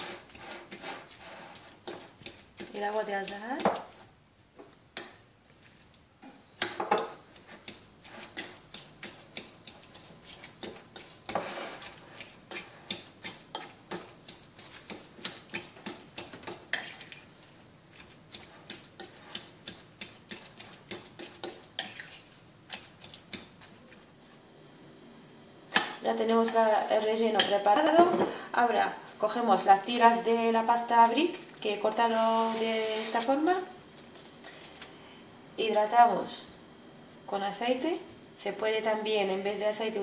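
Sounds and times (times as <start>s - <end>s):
fork scraping a ceramic bowl: 0.0s - 3.4s, 7.0s - 24.1s
fork knocking on bowl: 6.6s - 10.0s.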